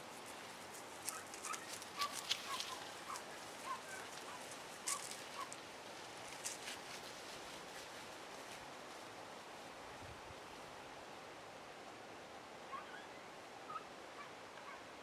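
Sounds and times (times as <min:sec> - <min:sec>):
footsteps through dry grass: 0:00.0 - 0:09.8.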